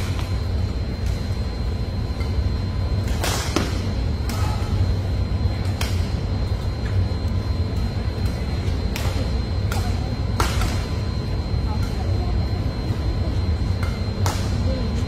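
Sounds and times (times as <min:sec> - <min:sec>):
low rumble of sports hall: 0:00.0 - 0:15.0
rackets striking shuttlecock: 0:03.0 - 0:04.7.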